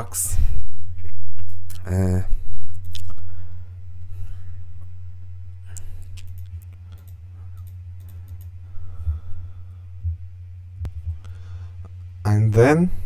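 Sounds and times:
low electrical hum: 0:00.0 - 0:13.0
computer mouse clicks: 0:05.7 - 0:08.6.

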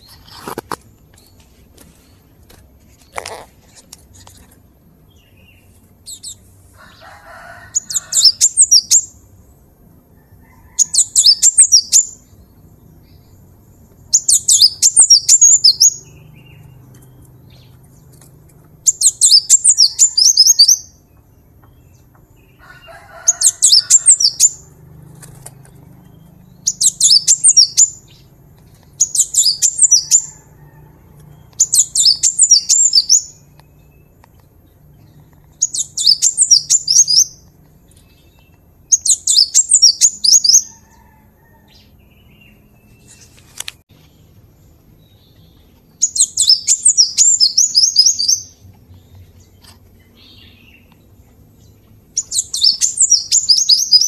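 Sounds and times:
bird singing high-pitched notes: 0:07.7 - 0:09.2, 0:10.8 - 0:12.3, 0:14.1 - 0:17.3, 0:18.9 - 0:21.0, 0:26.6 - 0:28.2, 0:29.0 - 0:30.4, 0:31.6 - 0:34.1, 0:35.6 - 0:37.5, 0:38.9 - 0:40.8, 0:45.0 - 0:48.6, 0:52.1 - 0:54.0.

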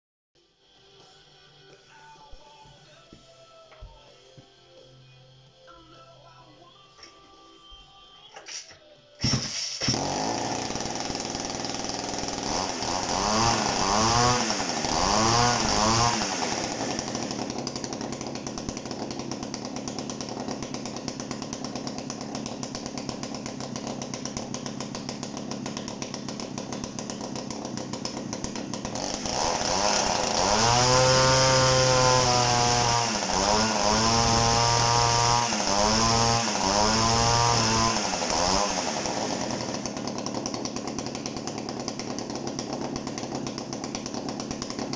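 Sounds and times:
chainsaw engine revving and idling: 0:09.3 - 0:44.9.

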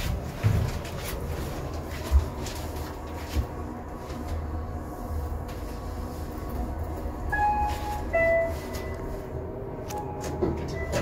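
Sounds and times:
elevator rumble: 0:00.0 - 0:11.0
two-note elevator chime: 0:07.3 - 0:09.0.

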